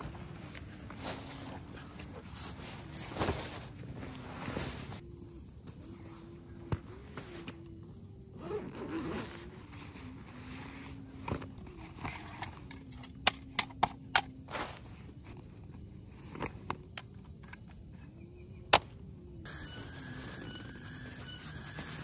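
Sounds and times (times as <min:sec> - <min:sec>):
rustling and handling: 0:00.0 - 0:05.0
faint low wavering hum: 0:00.0 - 0:22.0.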